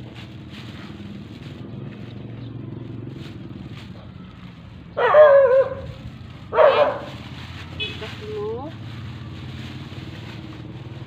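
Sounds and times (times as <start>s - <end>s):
dog barking: 5.0s - 7.2s.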